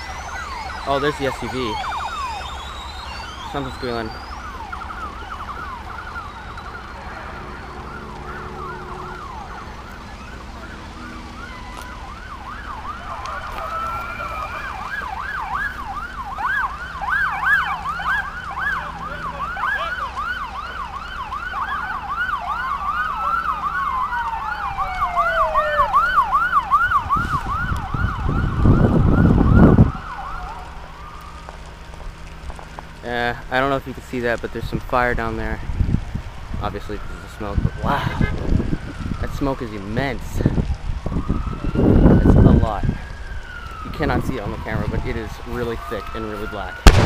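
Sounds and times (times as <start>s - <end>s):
fast yelping sirens: 0.0s - 47.0s
wailing siren: 0.0s - 47.0s.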